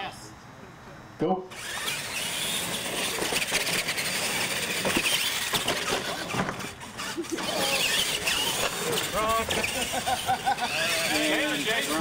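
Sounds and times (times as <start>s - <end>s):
toy truck motors whining: 1.5s - 12.0s.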